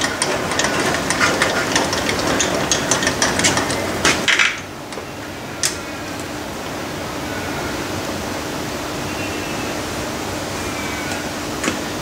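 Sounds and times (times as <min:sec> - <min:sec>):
lathe handwheel metallic clicking: 0:00.0 - 0:04.6.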